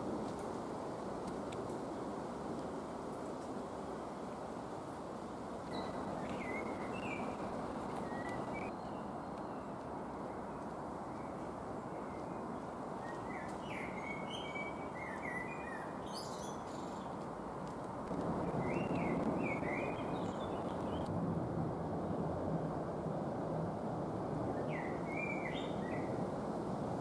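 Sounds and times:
songbirds chirping: 0:05.6 - 0:17.4, 0:18.4 - 0:21.1, 0:24.6 - 0:26.2.

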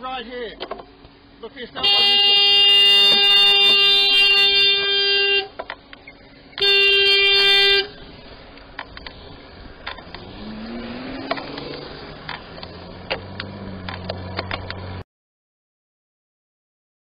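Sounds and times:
car horn blasts: 0:01.8 - 0:05.6, 0:06.5 - 0:08.0
engine speeding up: 0:07.8 - 0:15.0
clicks: 0:11.3 - 0:14.8.

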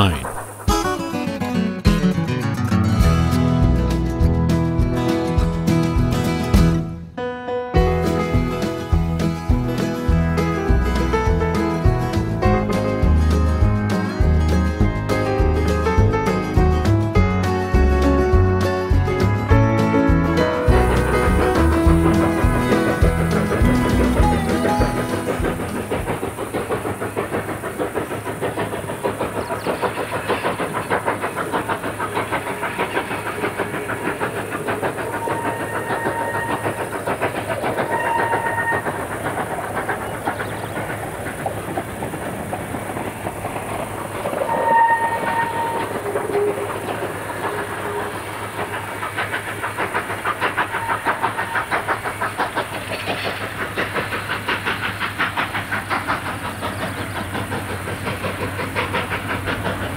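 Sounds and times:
steam locomotive chuffing: 0:00.0 - 0:07.1, 0:07.8 - 0:59.9
steam whistle: 0:35.0 - 0:36.8, 0:37.8 - 0:39.1, 0:44.4 - 0:46.8.

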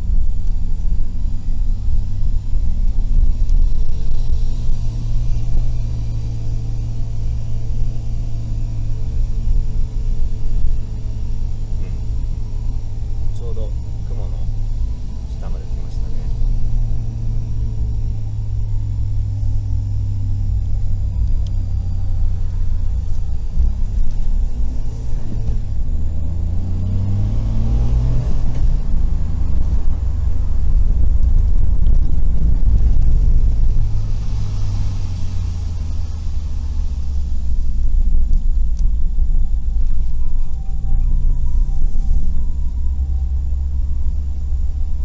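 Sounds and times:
van engine and road drone: 0:00.0 - 0:45.0.

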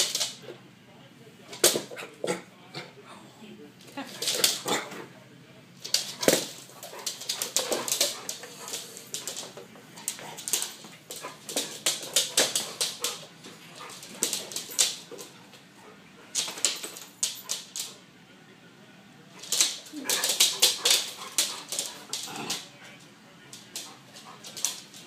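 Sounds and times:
dog claws clicking on wood floor: 0:00.0 - 0:00.4, 0:05.8 - 0:15.4, 0:16.3 - 0:18.0, 0:19.4 - 0:22.7, 0:23.5 - 0:25.0.

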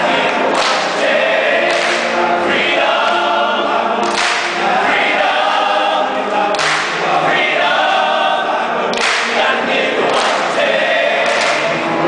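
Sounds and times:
men's chorus singing pop song: 0:00.0 - 0:12.0
hands clapping: 0:00.2 - 0:02.5, 0:04.0 - 0:05.0, 0:06.4 - 0:07.2, 0:08.9 - 0:12.0.

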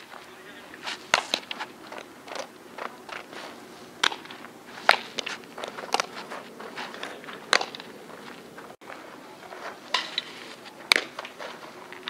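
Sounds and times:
cleats scuffing on dirt: 0:00.0 - 0:12.0
softball hitting leather glove: 0:00.8 - 0:03.3, 0:04.0 - 0:08.0.

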